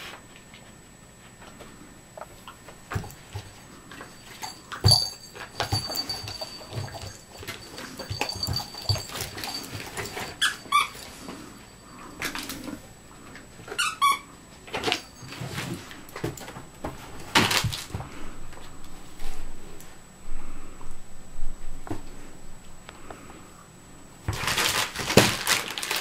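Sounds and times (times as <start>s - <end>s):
squeaky toy squeaking: 13.7s - 14.3s
plastic packets crinkling: 24.3s - 26.0s.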